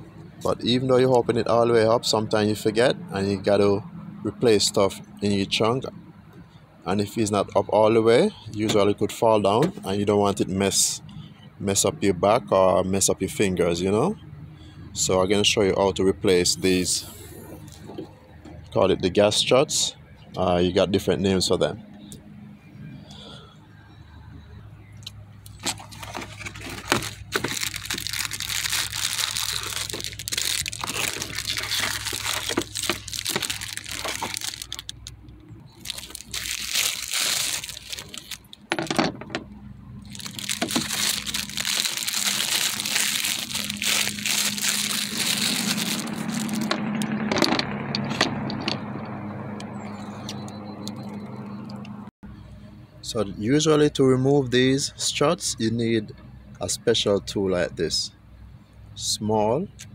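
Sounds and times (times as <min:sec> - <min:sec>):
plastic wrap crinkling: 0:25.5 - 0:38.7, 0:40.0 - 0:46.8.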